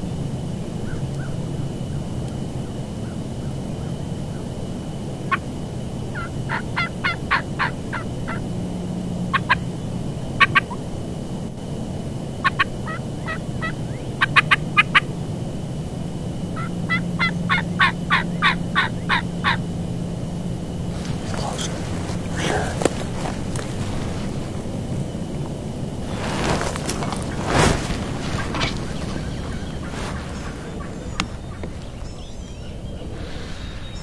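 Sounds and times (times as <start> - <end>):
turkey yelps: 6.1 - 8.4, 12.4 - 15.1, 16.6 - 19.6.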